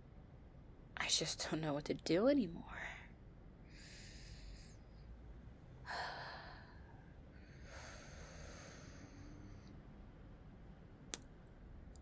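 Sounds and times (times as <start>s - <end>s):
woman breathing: 3.6s - 5.2s, 5.8s - 10.0s.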